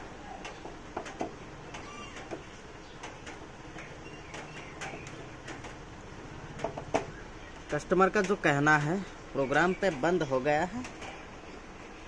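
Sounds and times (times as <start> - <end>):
faint bird chirps: 1.6 - 3.2, 3.8 - 5.6.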